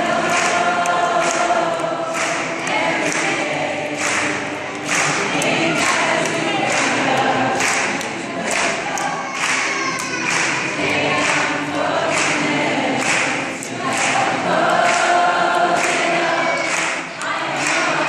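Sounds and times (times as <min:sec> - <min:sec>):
crowd chanting in unison: 0:00.0 - 0:18.0.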